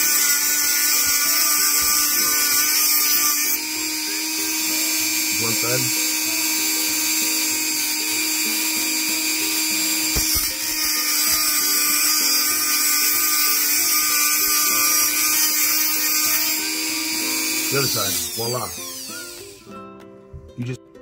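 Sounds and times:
rotary tool grinding metal: 0:00.0 - 0:19.7.

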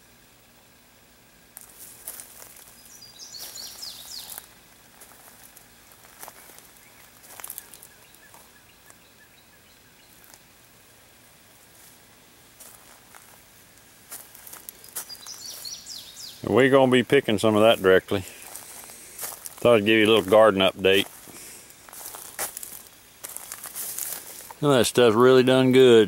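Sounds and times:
faint high hum: 0:00.0 - 0:26.0
rustling: 0:01.5 - 0:09.0, 0:11.6 - 0:16.0, 0:18.2 - 0:25.2
bird chirping: 0:02.6 - 0:04.6, 0:06.3 - 0:10.4, 0:14.7 - 0:19.0.

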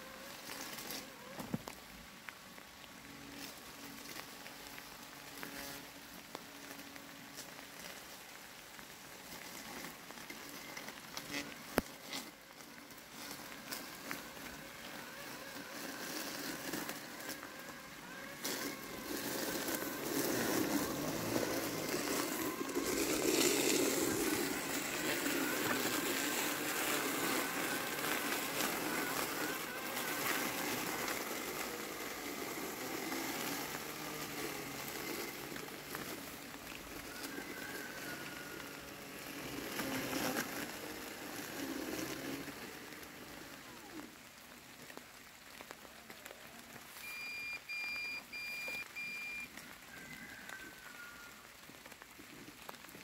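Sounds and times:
rain hissing: 0:00.0 - 0:53.0
robotic lawn mower cutting weeds: 0:00.0 - 0:53.0
electronic beeps: 0:47.0 - 0:49.5.

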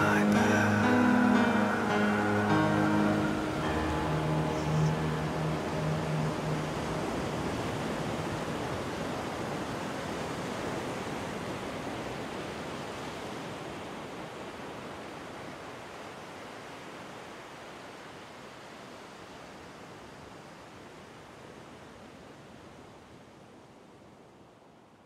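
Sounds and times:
low held musical note: 0:00.0 - 0:08.4
even rushing noise: 0:00.0 - 0:09.3.

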